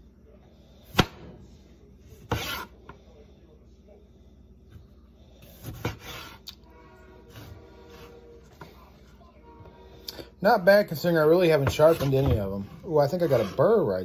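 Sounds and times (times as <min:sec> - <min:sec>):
knife scraping: 0:02.2 - 0:02.8, 0:05.4 - 0:06.6, 0:11.6 - 0:14.0
knife slicing a lemon: 0:02.2 - 0:02.8.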